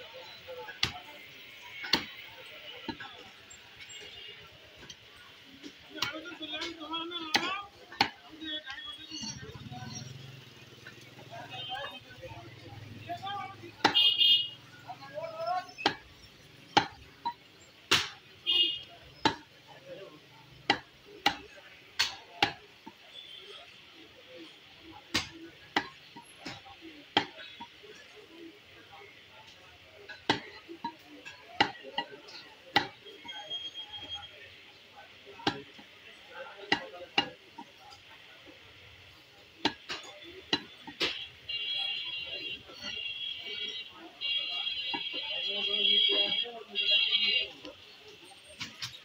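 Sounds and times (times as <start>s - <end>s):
cleaver chopping meat on wood: 1.8s - 2.1s, 7.3s - 8.2s, 15.7s - 17.0s, 17.9s - 18.2s, 20.6s - 23.0s, 25.1s - 26.6s, 27.2s - 27.4s, 31.6s - 31.8s, 32.7s - 33.0s.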